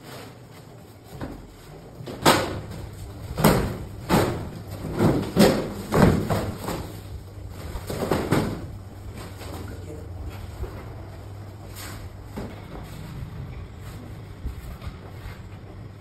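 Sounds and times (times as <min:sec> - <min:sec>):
cardboard scraping and thumping: 0:00.0 - 0:09.7.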